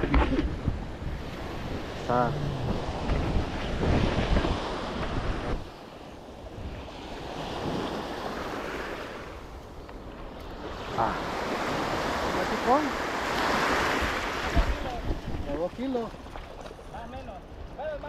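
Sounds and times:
wind buffeting microphone: 0:00.0 - 0:08.7, 0:09.3 - 0:18.0
surf washing against rocks: 0:00.0 - 0:09.6, 0:10.2 - 0:18.0.

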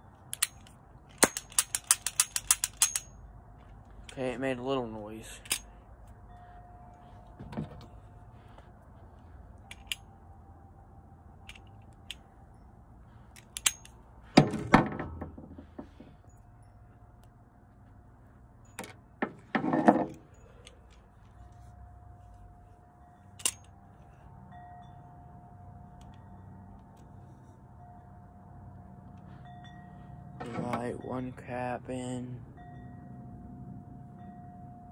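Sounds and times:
toy cap gun clicking and clattering: 0:00.3 - 0:03.1, 0:13.4 - 0:13.9, 0:23.4 - 0:23.7.

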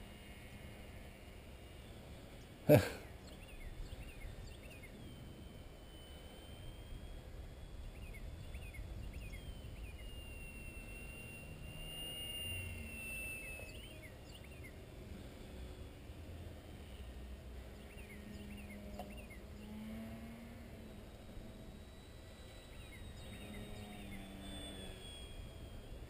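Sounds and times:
model airplane motor whine: 0:00.0 - 0:26.0
bird chirps: 0:01.8 - 0:14.8, 0:17.7 - 0:19.8, 0:21.2 - 0:26.0.

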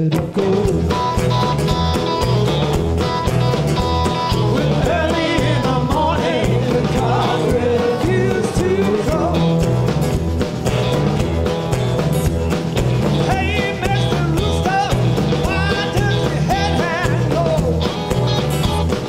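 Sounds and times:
man singing: 0:00.0 - 0:01.2, 0:04.4 - 0:09.7, 0:13.2 - 0:17.9
acoustic guitar: 0:00.0 - 0:19.0
bass guitar: 0:00.0 - 0:19.0
drums: 0:00.0 - 0:19.0.

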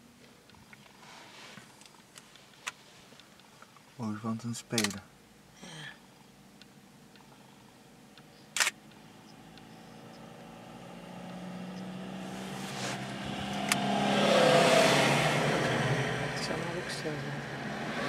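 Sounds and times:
sharp click: 0:04.7 - 0:05.0
vehicle engine and tyres approaching: 0:07.2 - 0:18.0.

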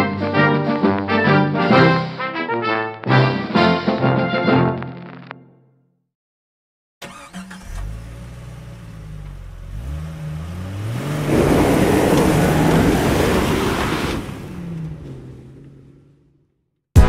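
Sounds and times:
car engine revving: 0:07.0 - 0:16.5.

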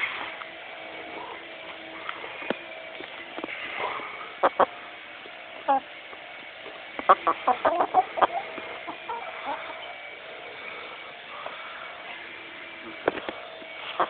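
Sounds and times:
chickens clucking: 0:04.3 - 0:04.8, 0:05.6 - 0:05.9, 0:06.9 - 0:10.0, 0:13.8 - 0:14.0.

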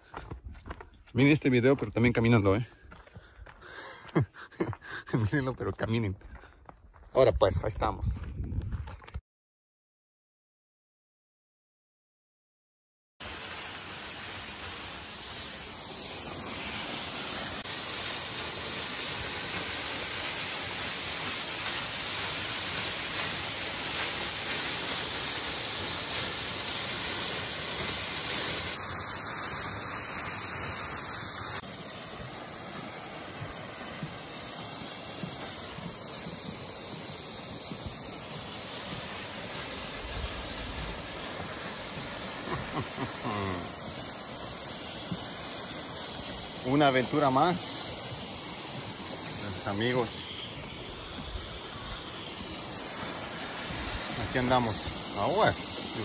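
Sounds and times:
waterfall rushing: 0:13.2 - 0:56.0.

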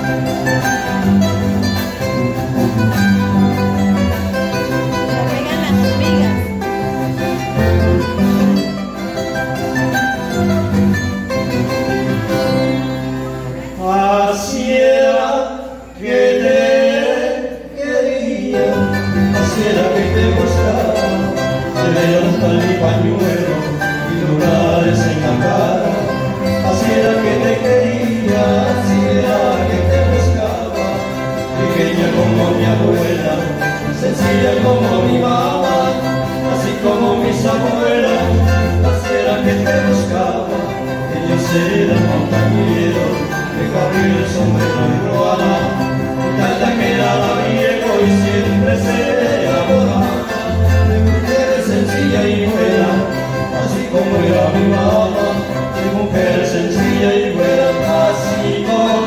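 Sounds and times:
acoustic string trio playing: 0:00.0 - 0:17.7, 0:18.4 - 0:59.0.

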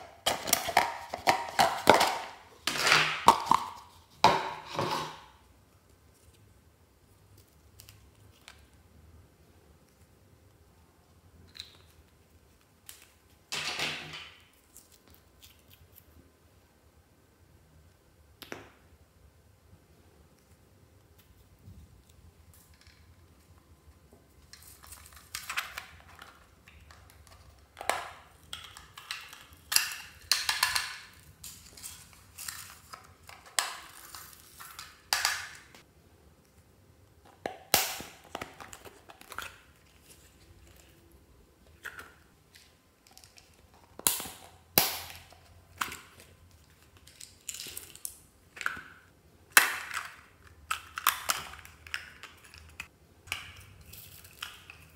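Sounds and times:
plastic containers clicking open and shut: 0:00.0 - 0:05.3.

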